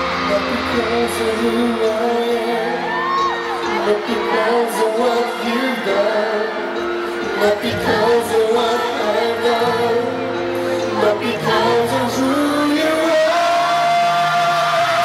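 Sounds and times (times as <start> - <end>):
audience screaming: 0.0 - 15.0
man singing into a microphone: 0.0 - 15.0
pop ballad over arena speakers: 0.0 - 15.0.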